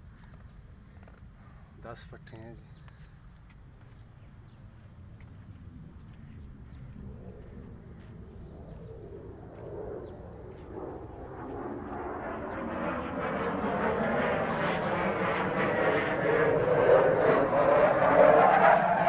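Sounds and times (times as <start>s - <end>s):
engine approaching: 5.2s - 19.0s.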